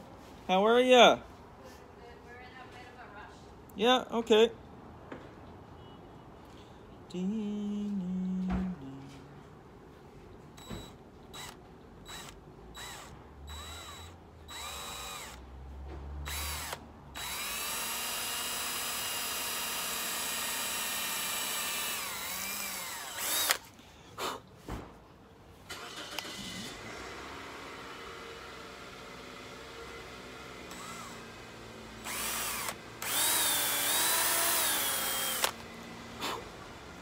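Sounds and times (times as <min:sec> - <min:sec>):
cordless drill drilling: 0:10.6 - 0:15.4, 0:16.3 - 0:23.7, 0:26.0 - 0:35.8.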